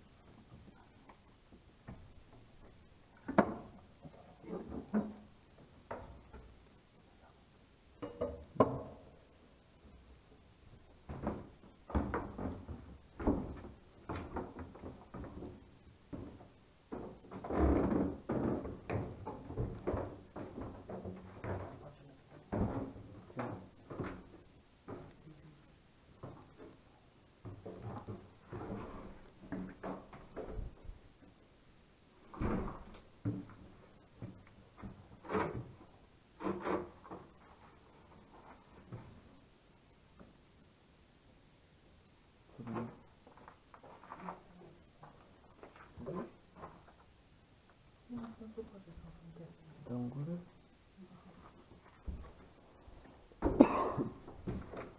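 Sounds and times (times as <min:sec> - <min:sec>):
wooden boards knocking and creaking: 0:01.8 - 0:06.6, 0:08.0 - 0:09.2, 0:11.0 - 0:21.8, 0:22.4 - 0:25.2, 0:32.2 - 0:39.2, 0:53.4 - 0:54.9.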